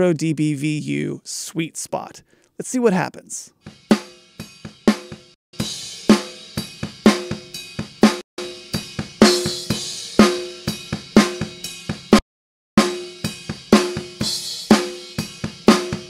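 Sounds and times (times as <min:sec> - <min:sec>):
distorted snare drum beat: 0:03.7 - 0:12.2, 0:12.8 - 0:16.0.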